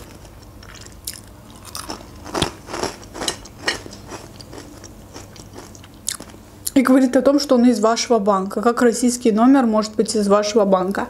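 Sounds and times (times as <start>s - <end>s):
crunching dry croutons: 0.0s - 6.3s.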